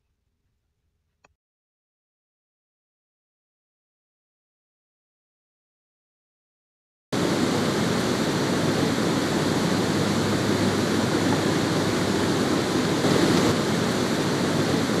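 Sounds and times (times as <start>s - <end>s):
water rushing over dam spillway: 7.2s - 15.0s.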